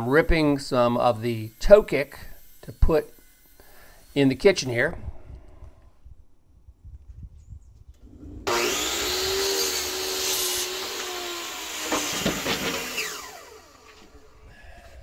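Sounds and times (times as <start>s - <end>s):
miter saw motor whining: 0.0s - 4.7s, 8.0s - 14.5s
saw cutting through board: 0.2s - 4.8s, 8.0s - 14.4s.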